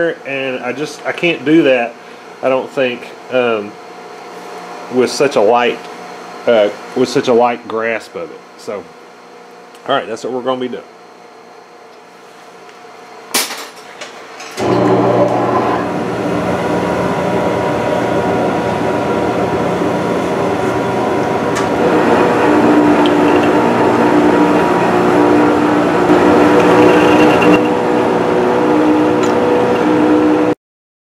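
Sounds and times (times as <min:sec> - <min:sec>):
metal lathe running: 0:14.6 - 0:30.5.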